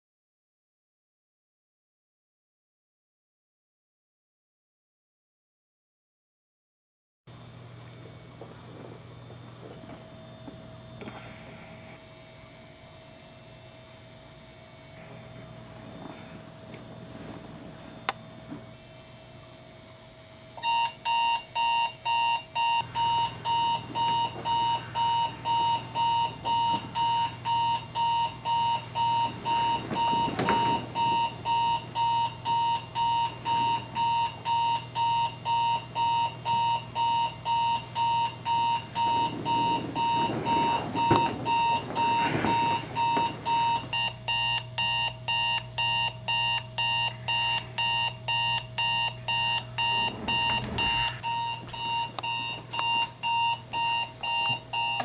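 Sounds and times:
bedclothes rustling: 0:15.2 - 0:18.7, 0:23.6 - 0:32.3, 0:38.6 - 0:44.1, 0:49.8 - 0:53.1
digital alarm clock beeping: 0:20.6 - 0:55.0.

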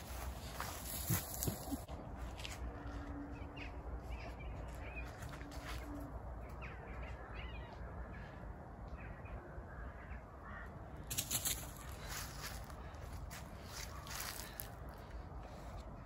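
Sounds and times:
rustling on leaf litter: 0:00.0 - 0:01.9, 0:13.6 - 0:14.7.

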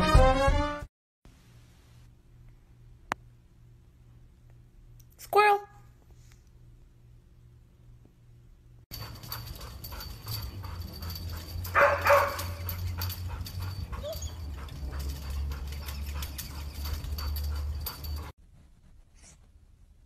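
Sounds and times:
dog barking: 0:09.0 - 0:15.9.

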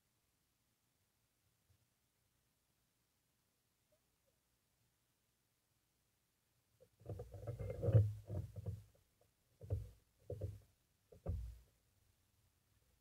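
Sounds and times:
muffled knocks on underwater housing: 0:11.2 - 0:11.6.

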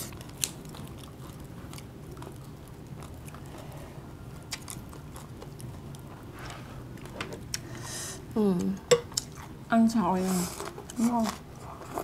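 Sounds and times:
person chewing food: 0:00.0 - 0:07.7, 0:09.1 - 0:09.6.

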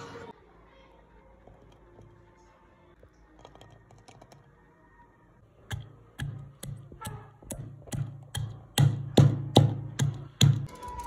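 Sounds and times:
pestle pounding in wooden mortar: 0:05.7 - 0:10.7.

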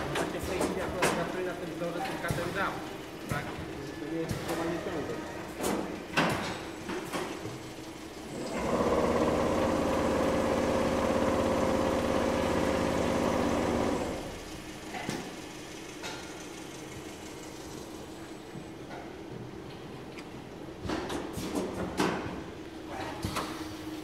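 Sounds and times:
machine hum: 0:00.0 - 0:20.9
quilting machine stitching chatter: 0:08.3 - 0:14.3.

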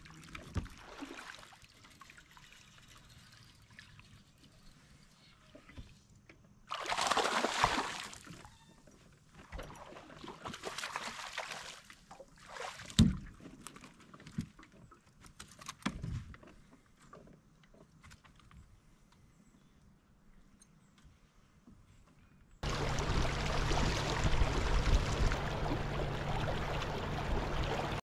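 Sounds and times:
fish splashing and thrashing: 0:06.7 - 0:08.4, 0:22.6 - 0:28.0.

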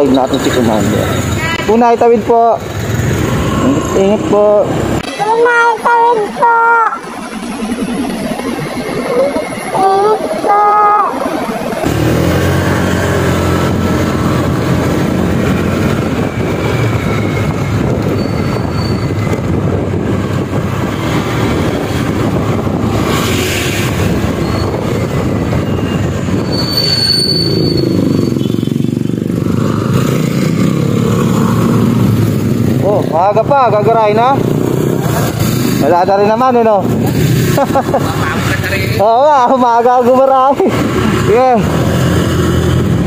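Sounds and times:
road noise: 0:00.0 - 0:43.0
scooter engine running: 0:11.7 - 0:21.4, 0:27.8 - 0:32.9.

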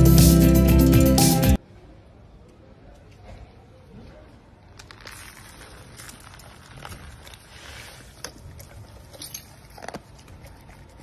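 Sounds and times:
kibble poured onto stone: 0:04.7 - 0:08.4.

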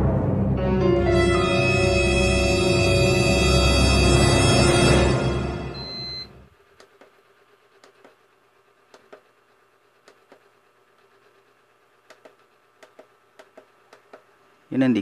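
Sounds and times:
clock clicks and taps: 0:07.8 - 0:08.2, 0:08.9 - 0:09.3, 0:12.1 - 0:14.3.

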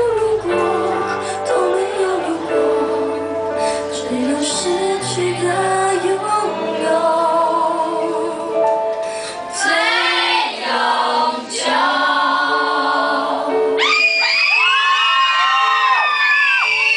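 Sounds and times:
woman singing pop ballad: 0:00.0 - 0:10.1
accompanying music: 0:00.0 - 0:14.7
audience whooping: 0:13.8 - 0:16.9.

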